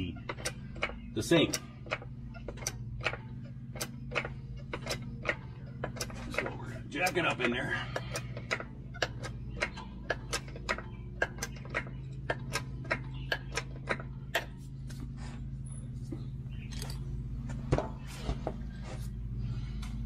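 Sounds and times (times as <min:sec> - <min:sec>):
transmission jack clicking: 0:00.0 - 0:14.6
steady low hum: 0:00.0 - 0:20.0.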